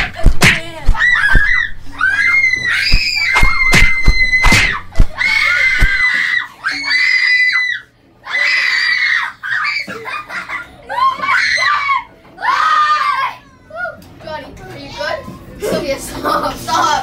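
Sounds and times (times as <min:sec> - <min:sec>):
sharp thumps: 0:00.0 - 0:01.8, 0:02.6 - 0:06.0
kids screaming on a ride: 0:01.0 - 0:04.5, 0:05.1 - 0:10.0, 0:10.9 - 0:13.6.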